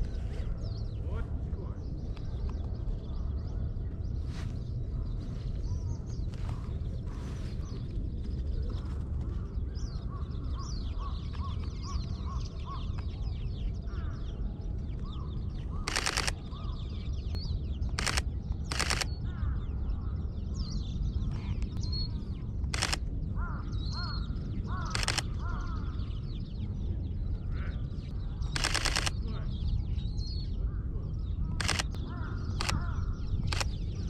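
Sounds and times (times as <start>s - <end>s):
birds chirping: 0.0s - 34.0s
low background rumble: 0.0s - 34.0s
camera shutter bursts: 15.9s - 16.4s, 18.0s - 19.1s, 22.7s - 23.0s, 24.9s - 25.3s, 28.6s - 29.2s, 31.6s - 32.0s, 32.6s - 32.8s, 33.4s - 33.8s.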